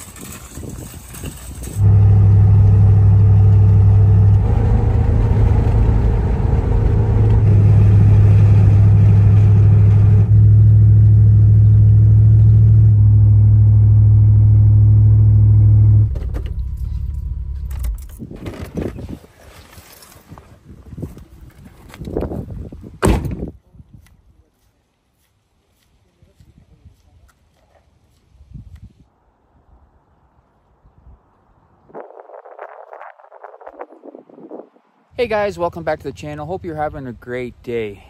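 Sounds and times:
suv engine low drone: 1.7 - 18.2.

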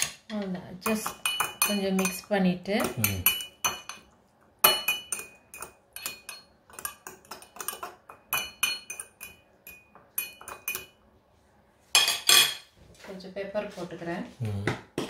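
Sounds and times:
metal utensil clinking on glass: 0.9 - 11.0.

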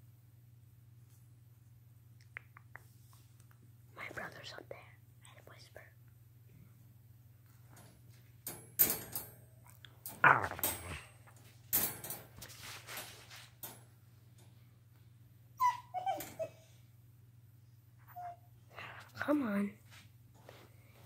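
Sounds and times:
puppy whimpering: 15.6 - 16.7, 18.1 - 18.5.

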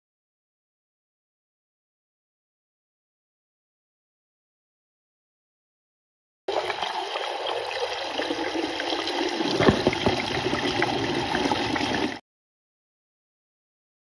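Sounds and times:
water splashing over gravel: 9.6 - 10.5.

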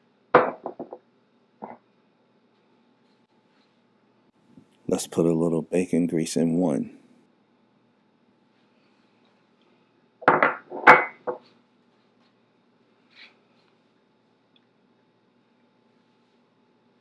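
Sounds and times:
mug knocking on hard surface: 0.4 - 1.0, 10.2 - 11.4.

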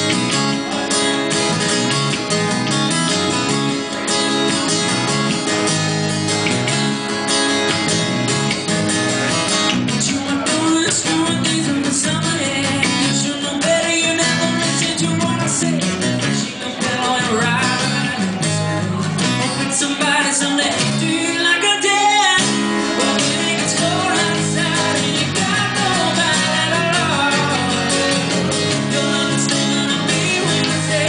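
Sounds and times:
bass line: 0.0 - 20.1, 22.4 - 31.0
strummed acoustic guitars: 0.0 - 31.0
person singing: 9.9 - 31.0.

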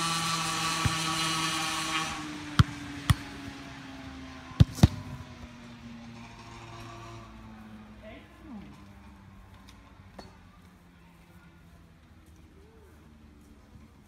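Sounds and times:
droning hum: 0.0 - 9.5
sharp thuds: 2.0 - 3.4.

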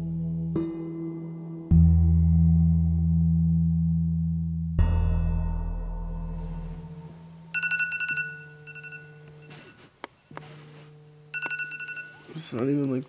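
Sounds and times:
low steady hum: 1.7 - 13.0
smartphone alarm beeping: 7.6 - 9.9, 10.5 - 12.4.

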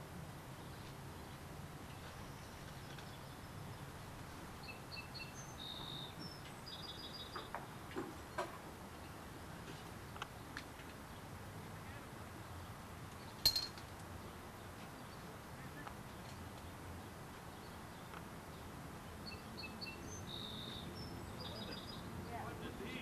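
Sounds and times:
outdoor background hiss: 0.0 - 23.0
faint bird chirps: 4.6 - 7.6, 19.2 - 22.4
sharp clink: 13.4 - 13.9.

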